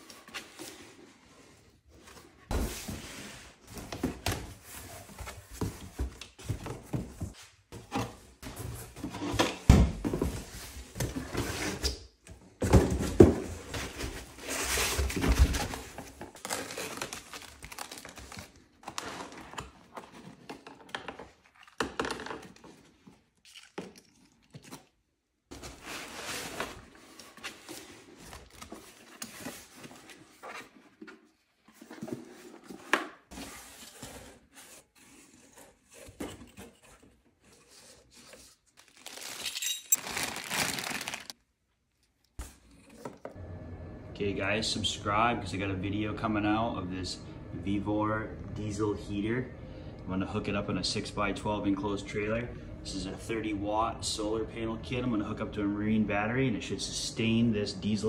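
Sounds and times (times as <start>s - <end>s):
plastic bags crinkling: 16.4s - 18.6s, 38.8s - 41.4s
cardboard and foam handled: 25.5s - 41.4s.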